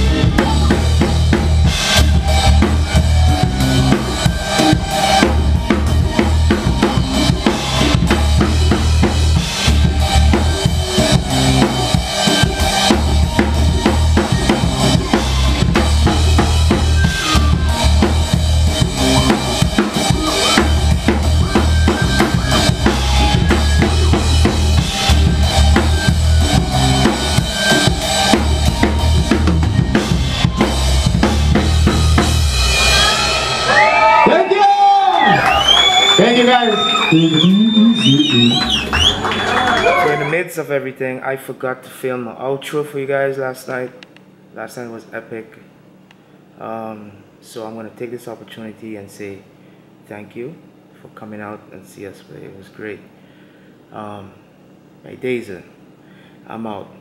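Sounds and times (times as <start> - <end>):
live rock band playing: 0.0 - 34.3, 35.3 - 40.3
drums: 0.0 - 40.3.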